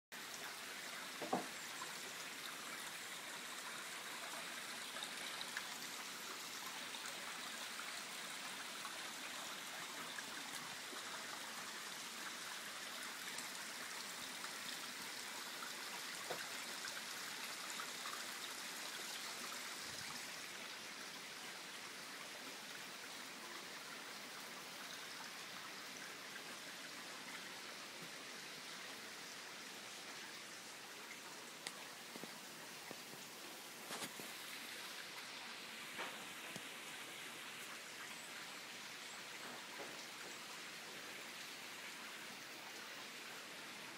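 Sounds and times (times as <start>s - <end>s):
water hiss: 31.0s - 40.4s
faint clicks: 31.6s - 33.0s.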